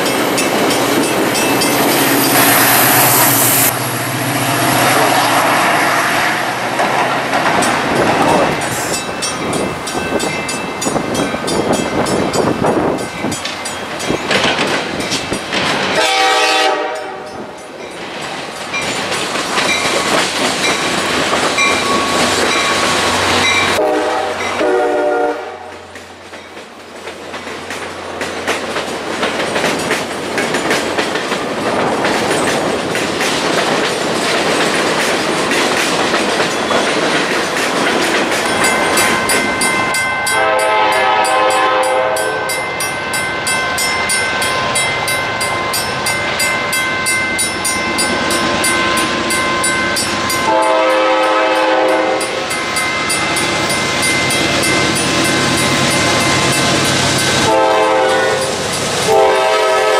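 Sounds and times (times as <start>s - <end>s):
steady high ringing: 0.0s - 4.8s, 38.4s - 41.1s, 41.8s - 57.5s
locomotive horn blasts: 16.0s - 17.4s, 23.8s - 25.8s, 40.3s - 42.6s, 50.4s - 52.4s, 57.4s - 59.9s.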